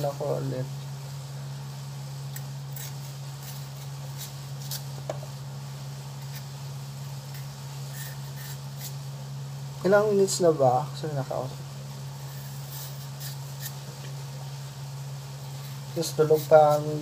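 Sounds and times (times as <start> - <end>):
steady low hum: 0.0 - 17.0
knife scraping vegetable skin: 2.3 - 5.0, 6.2 - 6.5, 7.3 - 9.0, 12.2 - 13.9.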